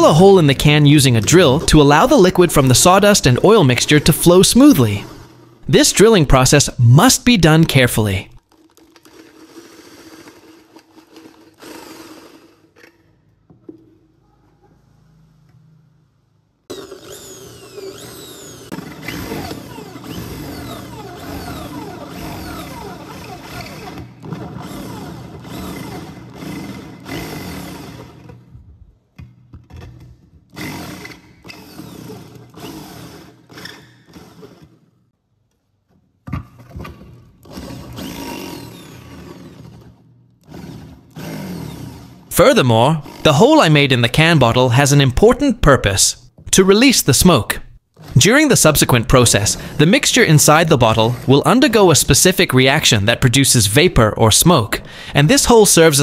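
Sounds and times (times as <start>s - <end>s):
power drill grating on metal: 16.8s - 27.7s.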